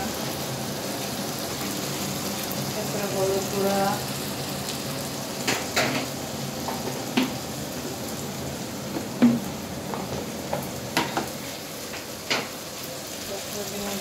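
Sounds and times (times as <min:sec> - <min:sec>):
food sizzling in frying pan: 0:00.0 - 0:14.0.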